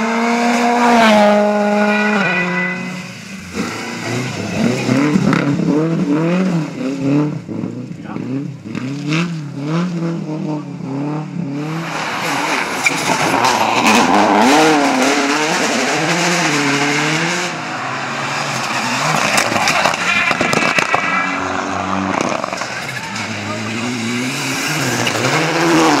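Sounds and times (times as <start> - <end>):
rally car engines revving: 0.0 - 26.0
tyres on gravel: 11.8 - 26.0.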